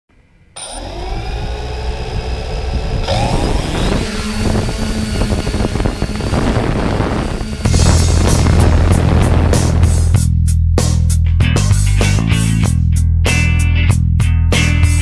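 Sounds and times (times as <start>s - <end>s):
drone propellers whining: 0.4s - 10.3s.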